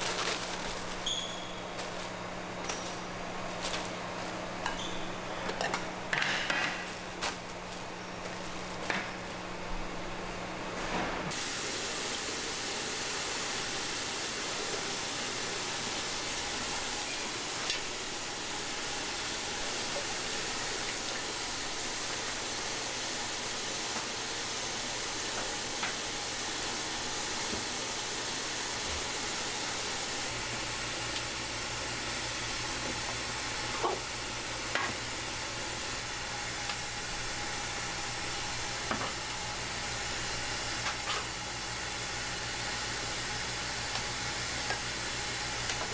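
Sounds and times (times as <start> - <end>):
food sizzling on griddle: 11.3 - 45.9.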